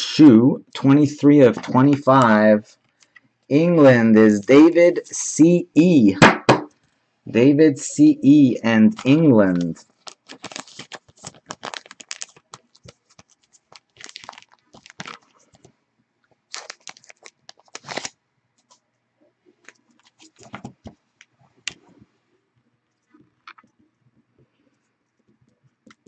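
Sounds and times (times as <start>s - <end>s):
plastic sleeves crinkling: 8.9s - 18.8s, 19.6s - 21.9s.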